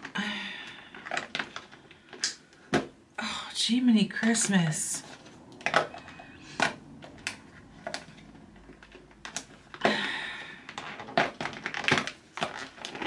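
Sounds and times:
packaging clicks and taps: 0:04.2 - 0:13.0.

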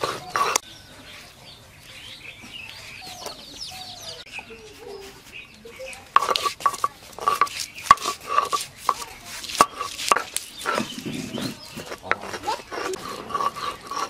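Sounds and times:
grinding stone knocking and scraping: 0:00.0 - 0:00.6, 0:06.1 - 0:14.0.

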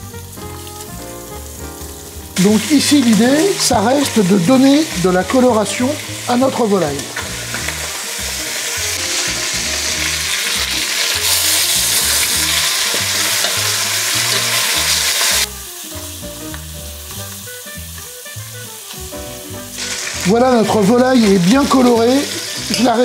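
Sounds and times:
chicken sizzling in oil: 0:00.0 - 0:23.0
chicken pieces being turned: 0:06.4 - 0:15.5, 0:19.8 - 0:23.0.

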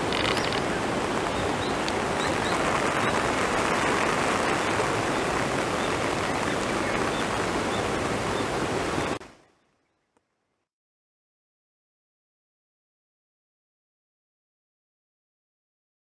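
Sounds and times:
running water rushing: 0:00.0 - 0:09.4.

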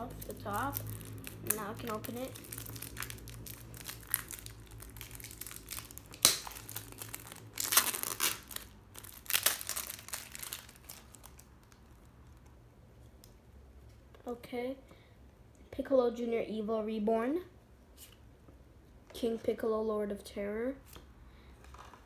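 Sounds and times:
plastic wrapper tearing and crinkling: 0:00.0 - 0:12.4.

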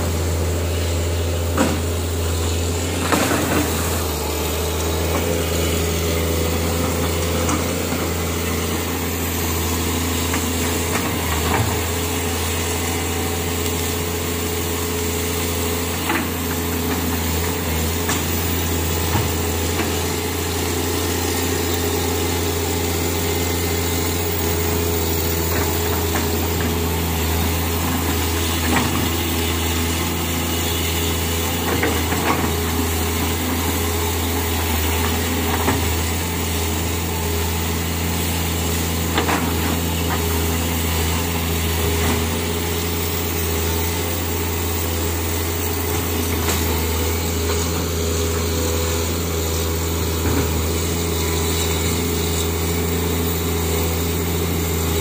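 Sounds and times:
excavator diesel engine humming: 0:00.0 - 0:55.0.

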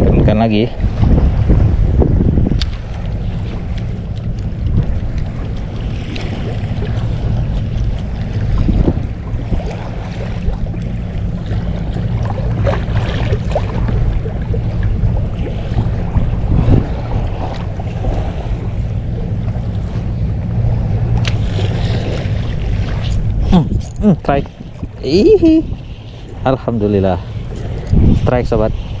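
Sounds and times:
steady low hum: 0:00.0 - 0:29.0
waves slapping against boat hull: 0:00.0 - 0:29.0
wind buffeting microphone: 0:00.0 - 0:29.0.

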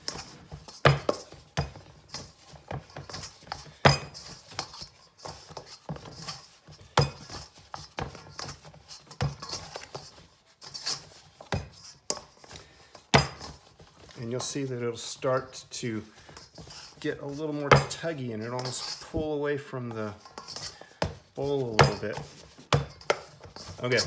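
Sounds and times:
scraper scraping dough in bowl: 0:00.0 - 0:14.6, 0:16.1 - 0:19.2, 0:20.0 - 0:24.0
metal bowl clanking: 0:20.1 - 0:24.0.

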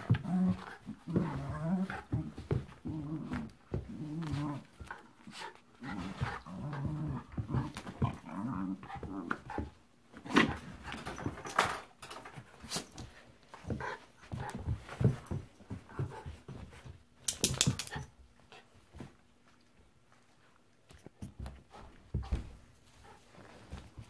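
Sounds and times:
puppy play-growling: 0:00.0 - 0:11.8.

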